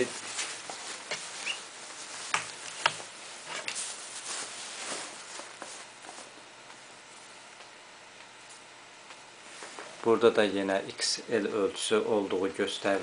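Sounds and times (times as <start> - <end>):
padded jacket rustling and crinkling: 0.0 - 6.4.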